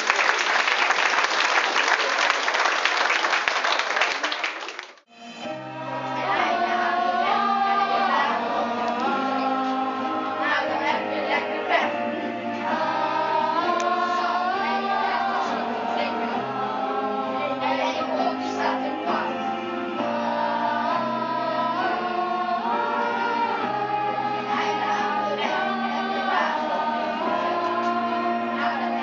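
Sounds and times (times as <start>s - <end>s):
audience applauding: 0.0s - 5.1s
instrumental backing music: 5.1s - 29.0s
children singing together: 5.5s - 29.0s.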